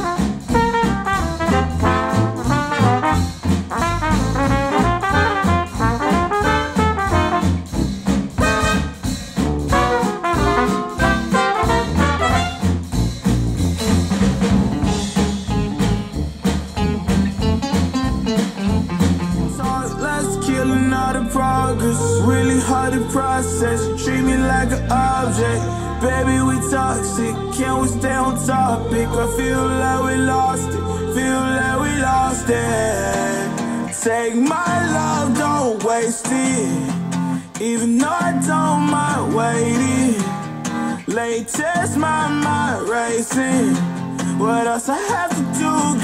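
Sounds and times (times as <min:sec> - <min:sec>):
jazzy tune with brass: 0:00.0 - 0:33.9, 0:38.3 - 0:40.6
hip hop pop song: 0:19.3 - 0:46.0.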